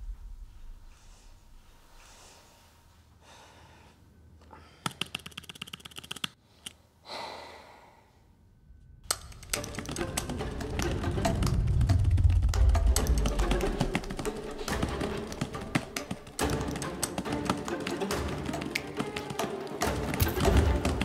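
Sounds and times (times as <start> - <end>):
computer keyboard typing: 4.8 - 6.4, 9.1 - 19.5.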